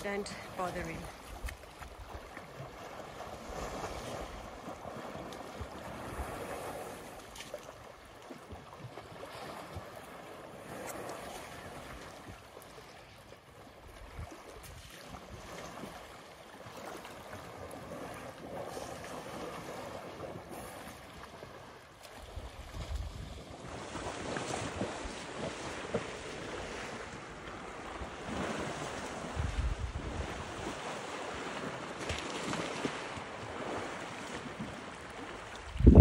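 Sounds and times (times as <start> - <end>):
water sloshing and lapping: 0.0 - 36.0
wind buffeting microphone: 22.3 - 27.1, 29.2 - 30.9, 35.6 - 36.0.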